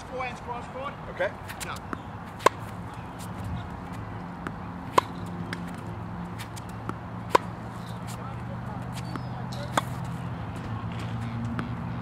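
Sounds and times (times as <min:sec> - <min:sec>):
tennis ball struck by racket: 0:01.4 - 0:10.3.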